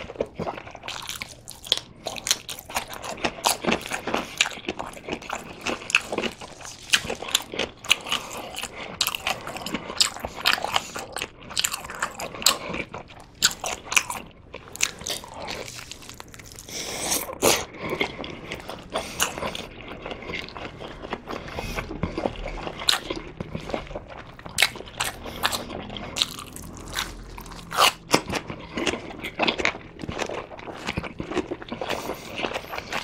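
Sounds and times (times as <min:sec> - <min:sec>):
chewing: 0:00.0 - 0:33.0.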